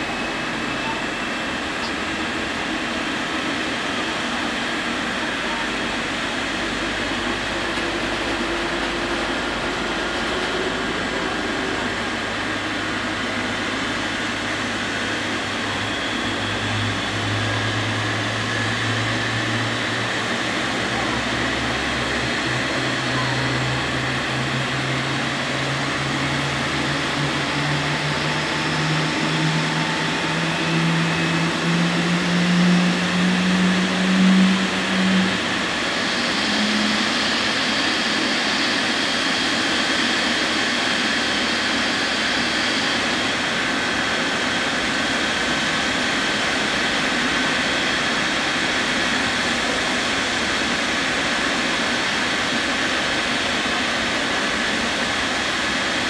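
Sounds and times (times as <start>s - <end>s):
high turbine whine: 0.0s - 56.0s
jet engines idling: 0.0s - 56.0s
low hum rising in pitch: 5.6s - 38.5s.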